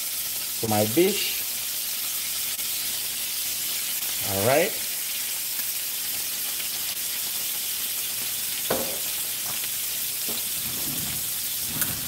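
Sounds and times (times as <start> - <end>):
fish frying in butter sizzling: 0.0 - 12.0
brief knock: 8.7 - 9.0.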